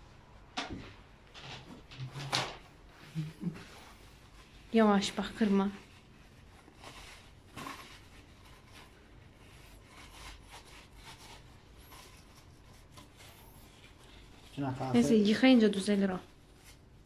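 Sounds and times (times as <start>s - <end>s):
paper towel rubbing and rustling: 1.4s - 17.0s.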